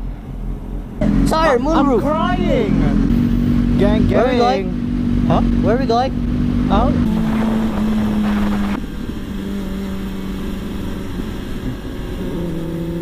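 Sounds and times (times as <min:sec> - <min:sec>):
motorcycle engine cruising: 0:01.0 - 0:13.0
wind rushing: 0:06.3 - 0:09.2.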